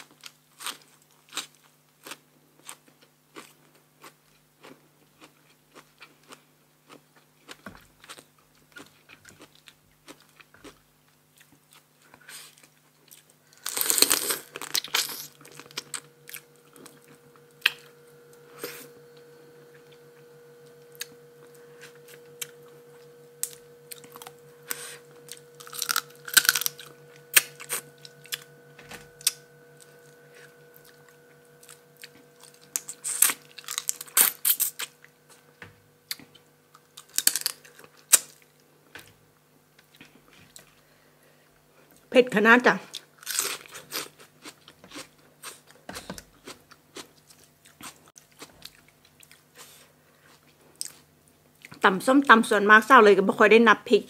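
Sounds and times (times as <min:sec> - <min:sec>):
person crunching and chewing food: 0:00.0 - 0:19.0, 0:20.9 - 0:28.5, 0:29.2 - 0:35.5, 0:36.1 - 0:38.6, 0:42.9 - 0:51.8
faint steady hum: 0:00.0 - 0:54.0.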